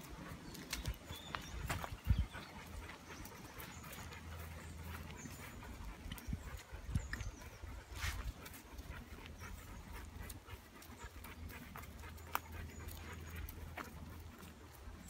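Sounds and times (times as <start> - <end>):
dog panting: 0.0 - 15.0
footsteps on dirt path: 0.0 - 15.0.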